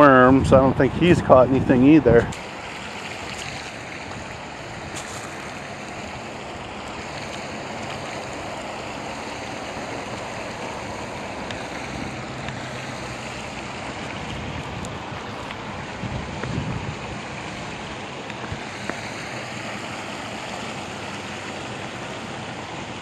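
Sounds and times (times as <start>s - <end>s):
water rushing over spillway: 0.0s - 23.0s.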